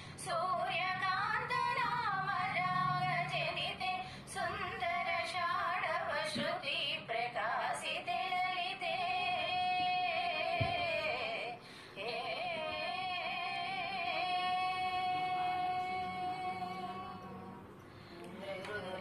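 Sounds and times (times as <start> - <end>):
woman singing devotional melody: 0.0 - 19.0.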